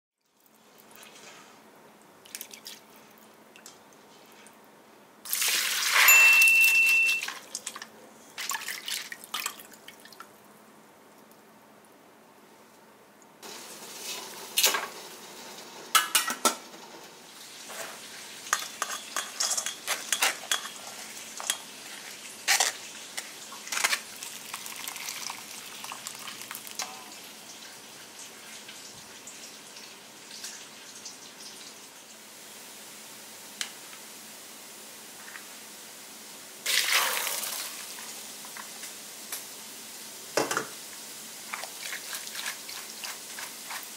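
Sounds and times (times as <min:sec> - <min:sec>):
water splashing and running: 0:41.4 - 0:43.9.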